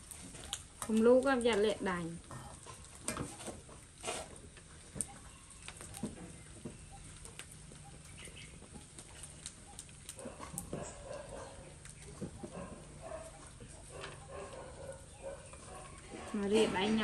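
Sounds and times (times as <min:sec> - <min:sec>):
sausages frying in a wok: 0:00.0 - 0:02.9.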